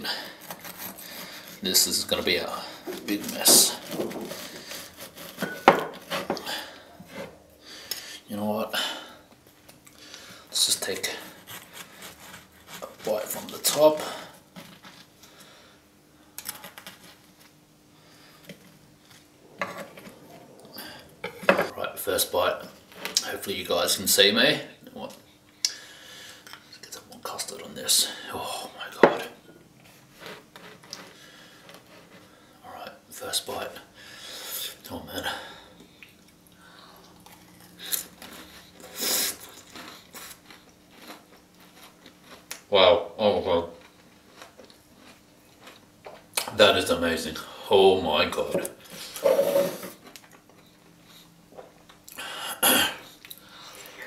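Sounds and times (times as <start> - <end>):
knife and fork crunching waffles: 37.2 - 42.6.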